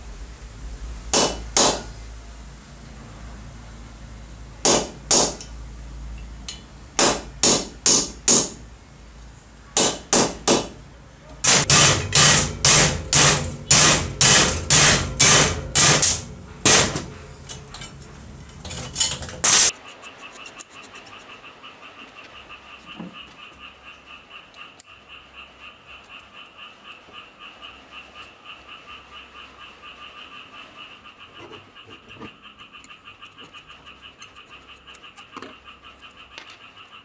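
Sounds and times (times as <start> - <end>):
hammer striking metal: 1.1 - 1.9, 4.6 - 5.5, 6.5 - 8.6, 9.8 - 10.8, 11.4 - 18.0, 18.7 - 19.7.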